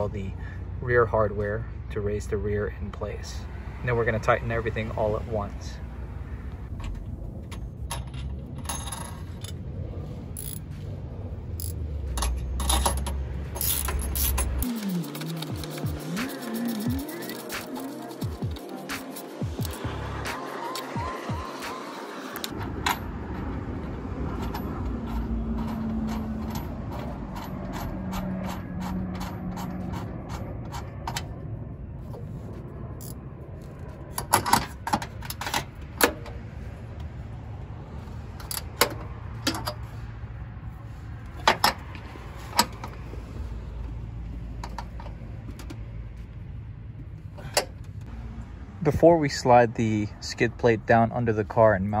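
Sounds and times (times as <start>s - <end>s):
metal hardware clicking and clinking: 6.8s - 9.6s, 11.5s - 19.8s, 22.4s - 31.4s, 38.4s - 39.9s.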